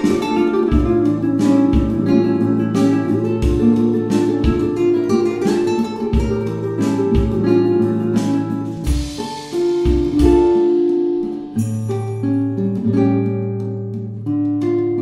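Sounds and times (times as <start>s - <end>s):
plucked acoustic guitar: 0.0s - 15.0s
steady beat: 0.0s - 15.0s.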